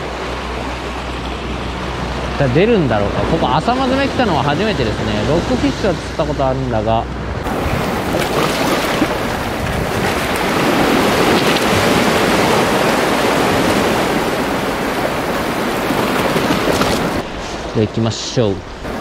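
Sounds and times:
sea surf on rocky shore: 7.4s - 19.0s.

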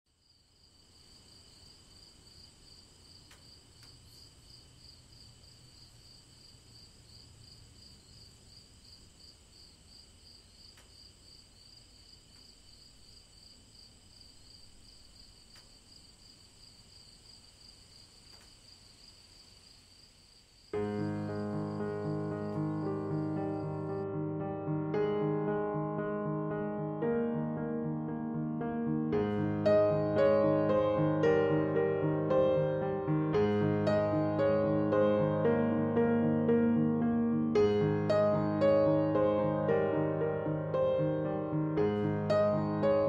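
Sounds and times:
crickets chirping: 0.1s - 24.7s, 29.3s - 43.0s
faint clicks: 3.2s - 4.2s, 15.5s - 15.8s.

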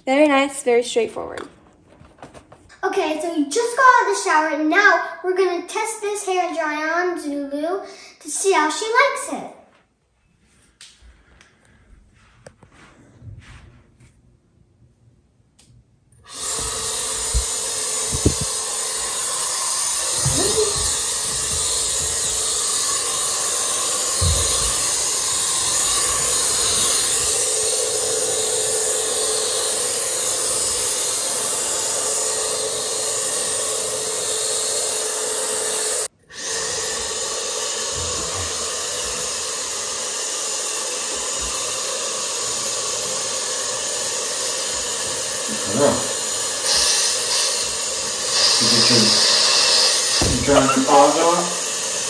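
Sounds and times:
pet dryer blowing air: 16.2s - 52.0s.

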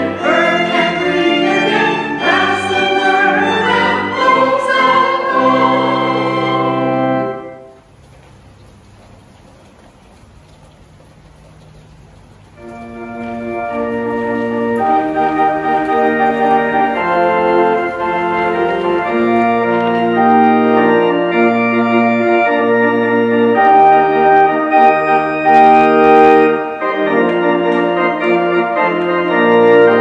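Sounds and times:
organ chords: 0.0s - 7.9s, 11.7s - 30.0s.

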